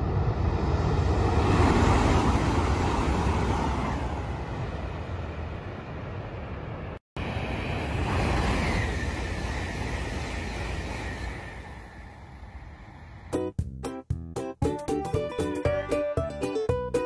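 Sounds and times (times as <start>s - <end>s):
high-speed train passing: 0.0s - 13.6s.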